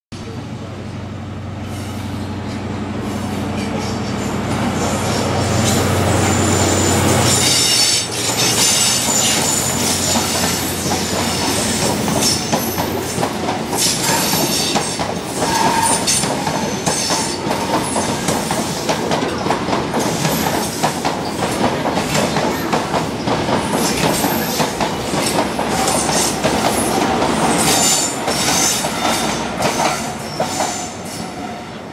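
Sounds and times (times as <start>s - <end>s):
train passing: 0.2s - 31.9s
wheel squeals: 5.1s - 13.0s.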